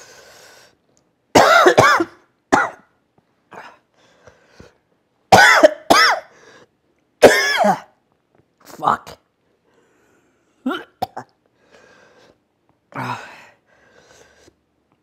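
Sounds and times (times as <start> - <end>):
man coughing hard: 1.4 - 2.9, 5.3 - 6.3, 7.2 - 8.0.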